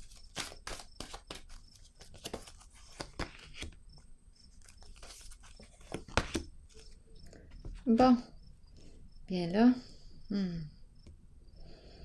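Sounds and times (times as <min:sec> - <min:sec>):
cards being shuffled: 0:00.0 - 0:07.0.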